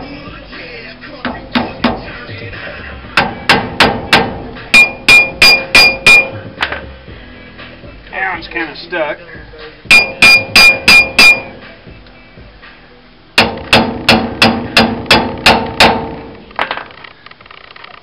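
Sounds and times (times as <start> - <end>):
hammer blows on metal: 3.2 - 6.8, 9.9 - 11.8, 13.4 - 16.3.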